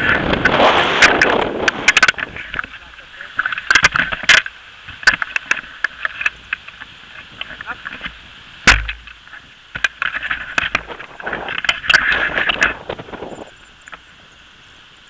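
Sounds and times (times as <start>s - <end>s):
wind on microphone: 0.0s - 15.0s
heavy thump: 8.7s - 9.2s.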